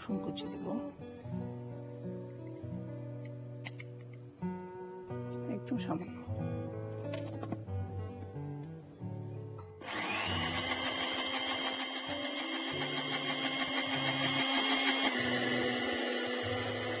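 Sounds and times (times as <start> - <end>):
blender motor whine: 9.8 - 17.0.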